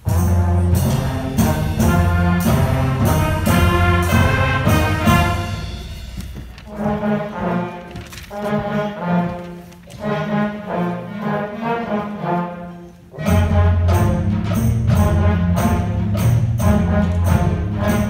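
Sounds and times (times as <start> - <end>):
drums and cymbals: 0.0 - 6.8, 13.2 - 18.0
concert band playing: 0.0 - 18.0.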